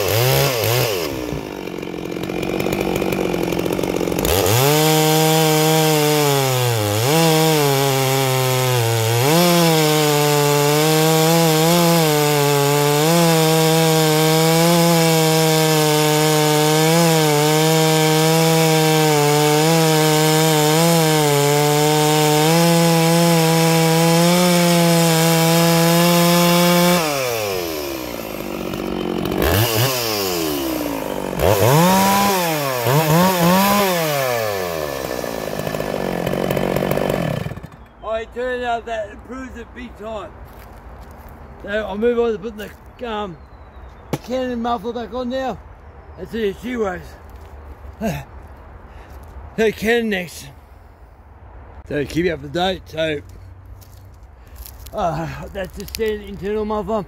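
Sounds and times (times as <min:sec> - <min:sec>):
chainsaw cutting a log: 0:00.0 - 0:38.0.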